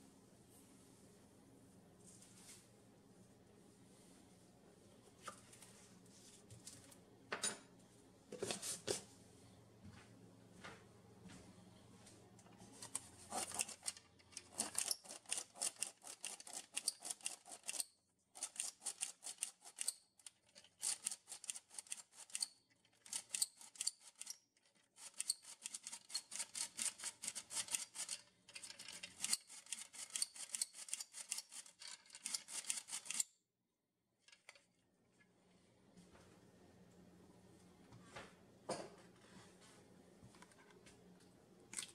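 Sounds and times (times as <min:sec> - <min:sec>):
flour sifter cranking: 0:12.8 - 0:17.8, 0:18.4 - 0:33.2.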